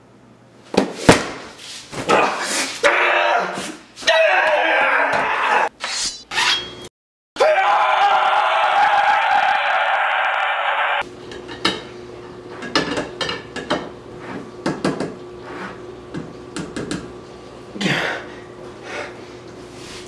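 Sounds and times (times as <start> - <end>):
blade scraping glass: 5.8 - 6.9.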